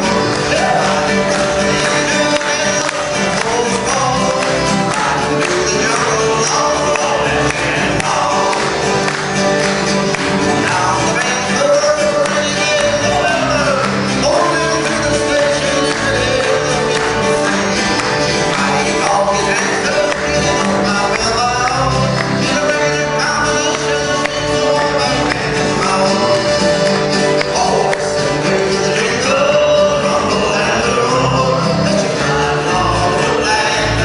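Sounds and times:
accordion: 0.0s - 34.0s
acoustic guitars: 0.0s - 34.0s
person singing: 0.0s - 34.0s.

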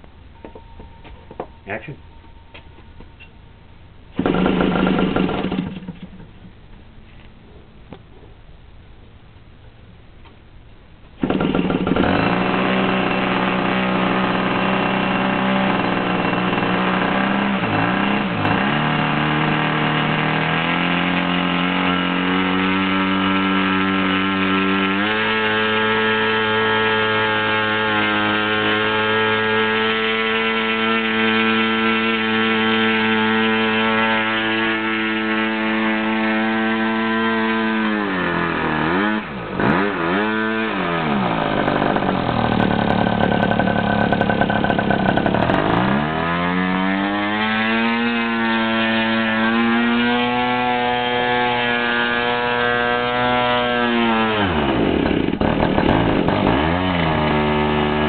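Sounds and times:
model airplane engine running: 40.6s - 46.1s.

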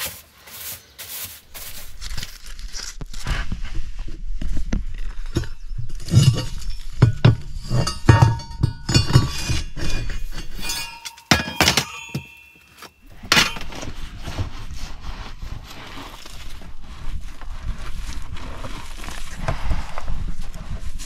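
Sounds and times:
clinks and knocks: 5.2s - 14.2s
debris scraped out of stove: 5.2s - 16.5s.

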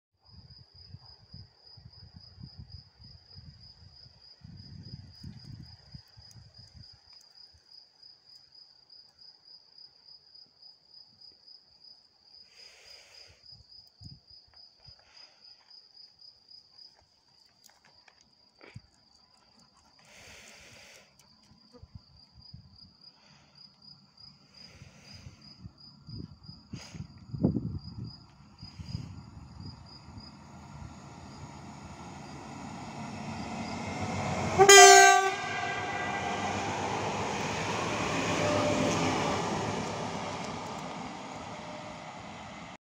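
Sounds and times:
insects chirping trill: 0.5s - 42.6s
low rumbles: 27.2s - 42.8s.

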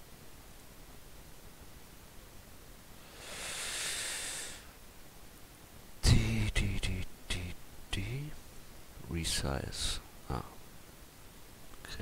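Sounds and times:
breath near microphone: 3.0s - 4.8s
man speaking: 6.0s - 8.4s, 9.0s - 10.6s.

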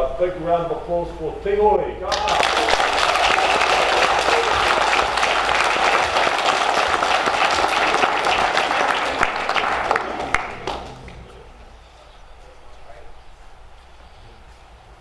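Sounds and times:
children applauding: 2.1s - 11.4s.

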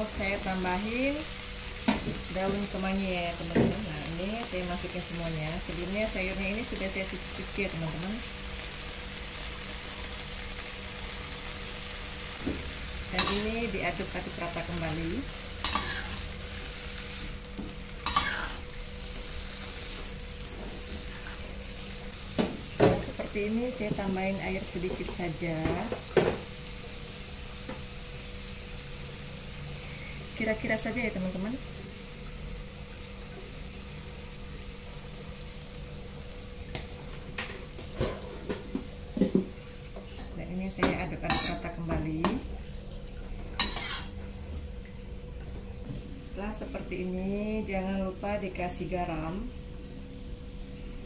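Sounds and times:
vegetables sizzling in oil: 0.0s - 44.4s
metal spatula scraping pan: 15.6s - 16.3s, 18.1s - 18.6s, 41.3s - 41.6s, 43.6s - 44.2s.

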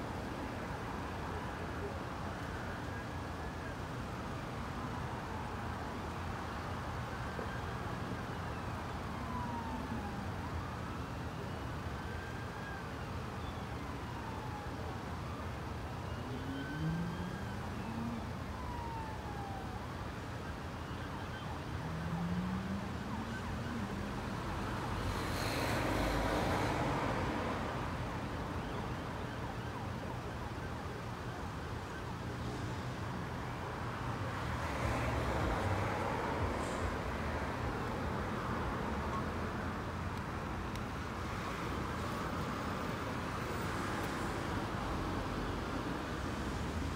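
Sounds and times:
road traffic: 0.0s - 46.9s
emergency siren wailing: 0.3s - 39.7s.

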